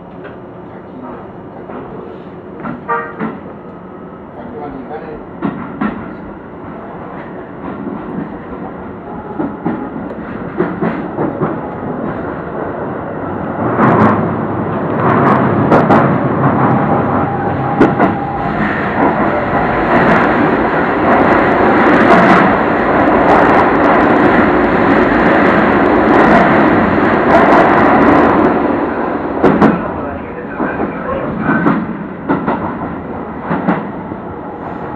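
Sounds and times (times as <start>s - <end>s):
electric train rumble: 0.0s - 34.9s.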